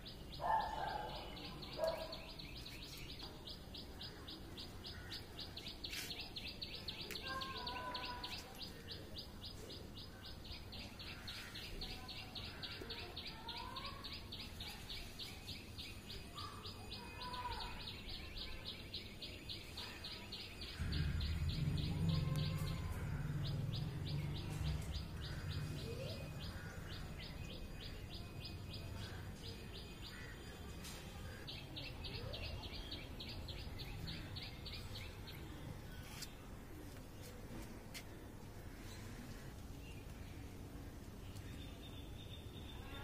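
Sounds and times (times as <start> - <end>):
bird chirping: 0.0 - 36.4
low rumble: 20.8 - 26.6.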